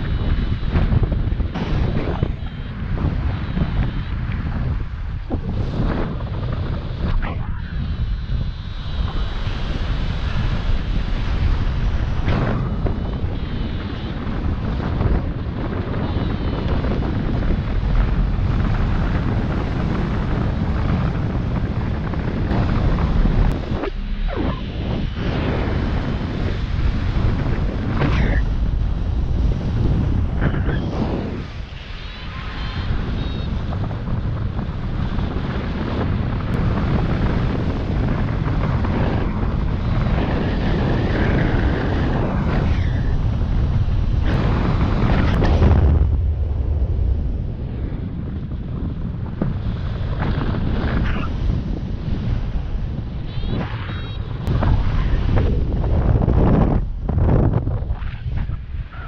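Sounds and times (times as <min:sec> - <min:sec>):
wind rumbling on microphone: 0:00.0 - 0:59.0.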